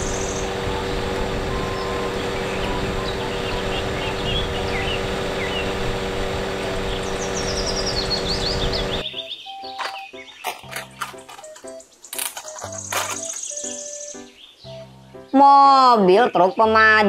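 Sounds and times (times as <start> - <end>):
aerial work platform humming: 0.0 - 9.1
birds chirping: 0.0 - 17.0.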